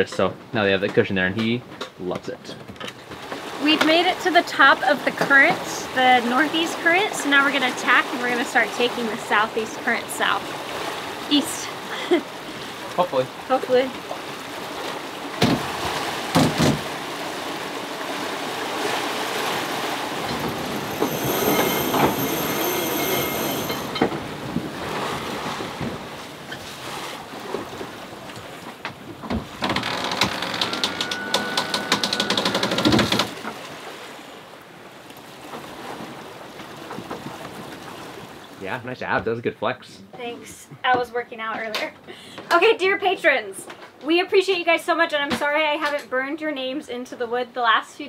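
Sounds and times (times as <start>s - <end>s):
rushing water: 2.9s - 43.2s
rushing wind: 17.1s - 27.8s
high squeal: 20.3s - 24.0s.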